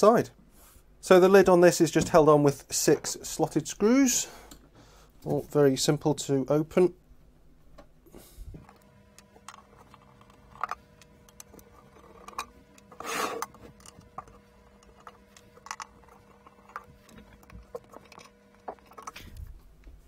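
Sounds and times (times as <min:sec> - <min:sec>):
faint steady hum: 0:00.0 - 0:20.0
screwdriver turning screws: 0:08.6 - 0:19.4
small clicks and scrapes: 0:08.6 - 0:20.0.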